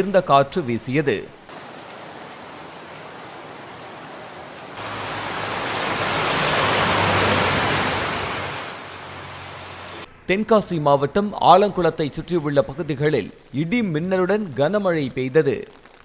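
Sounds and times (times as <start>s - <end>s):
heavy rain on road: 1.5s - 10.1s
vehicle passing with tyre spray: 1.5s - 10.1s.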